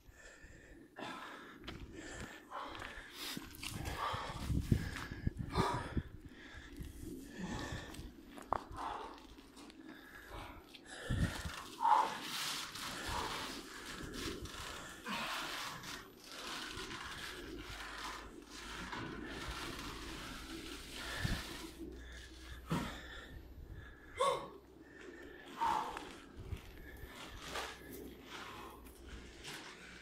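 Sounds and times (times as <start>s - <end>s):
person gasping for breath: 0.1s - 9.2s, 21.1s - 28.9s.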